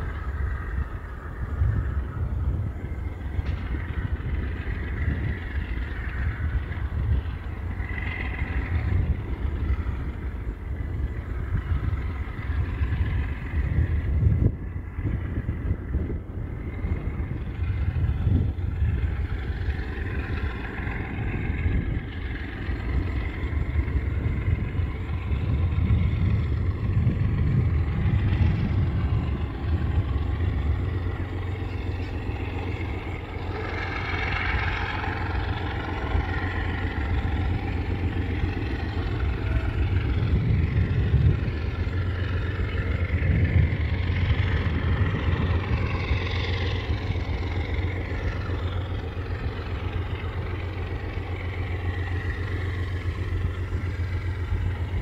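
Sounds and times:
locomotive engine rumbling: 0.0 - 55.0.

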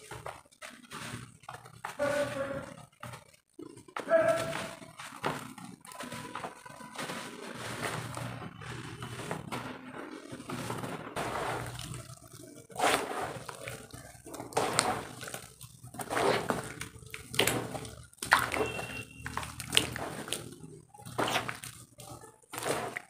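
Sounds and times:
muddy water sloshing over dirt: 10.5 - 23.0.

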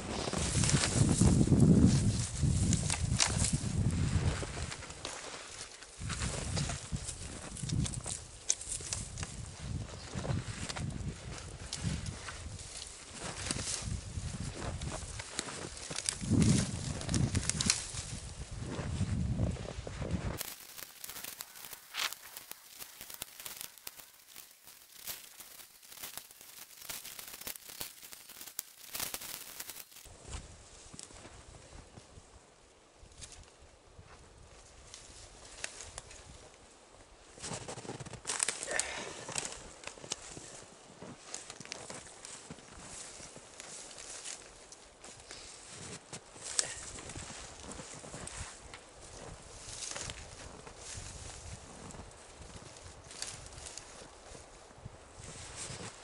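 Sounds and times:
footsteps crunching in snow: 0.0 - 31.6, 37.4 - 38.6, 39.3 - 54.5, 55.2 - 56.0
spruce boughs rustling: 0.0 - 32.2, 33.1 - 56.0
twigs snapping: 2.2 - 3.6, 4.8 - 9.4, 14.8 - 18.2, 20.4 - 30.1, 37.5 - 40.6, 53.1 - 54.0
sharp snap: 20.4 - 30.1.

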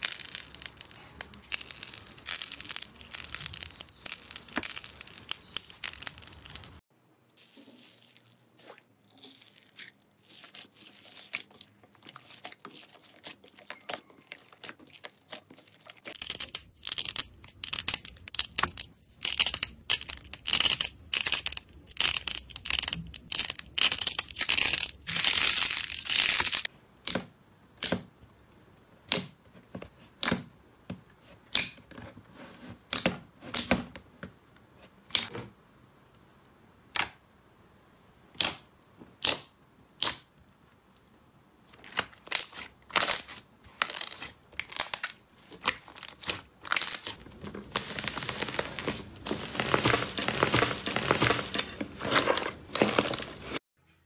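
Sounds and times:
paper labels crinkling: 0.0 - 6.8, 7.4 - 26.7, 42.2 - 53.6
slime crackling when squeezed: 0.0 - 6.8.

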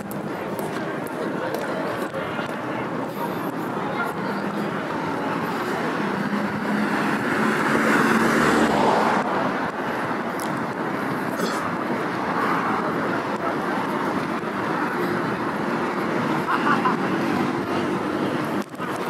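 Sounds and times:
city street noise: 0.0 - 19.0.

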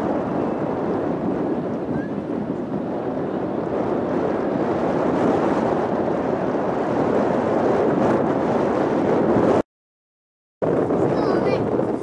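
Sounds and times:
wind on microphone: 0.0 - 9.6, 10.6 - 12.0.

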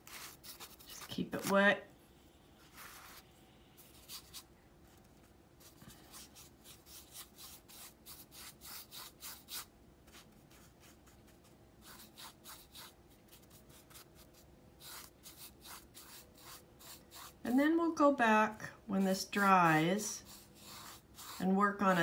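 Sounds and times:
paintbrush rubbing on canvas: 2.6 - 4.5, 11.8 - 17.4, 19.3 - 22.0.

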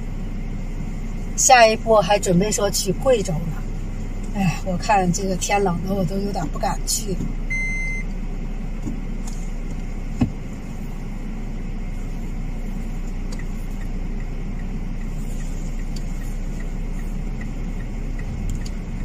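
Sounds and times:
car engine and road rumble: 0.0 - 19.0
faint regular ticking: 12.0 - 19.0.

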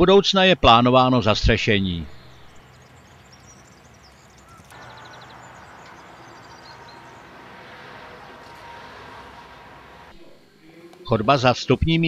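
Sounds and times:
small birds chirping: 1.7 - 10.1
bird trill: 1.8 - 10.1.

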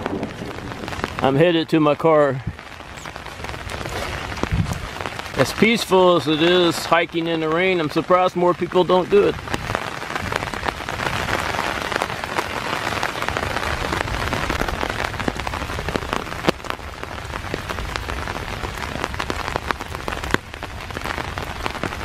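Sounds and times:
rain on leaf litter: 0.0 - 22.0
raindrops ticking close by: 0.0 - 22.0.

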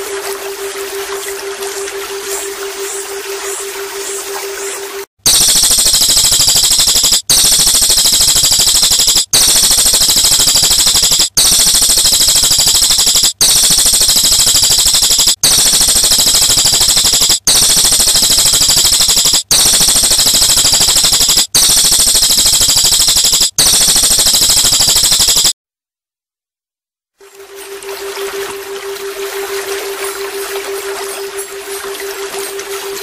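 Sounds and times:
bird rattling trill: 5.3 - 25.5.

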